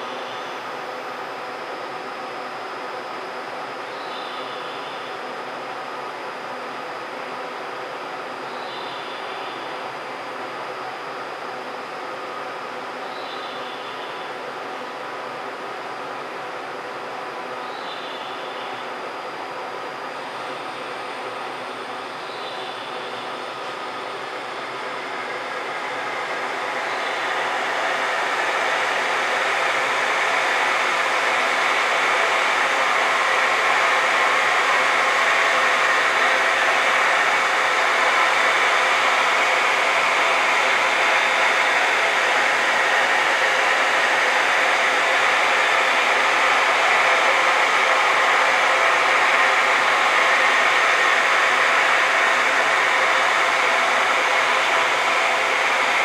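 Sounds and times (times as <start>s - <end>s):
loud rushing blower: 24.7s - 56.0s.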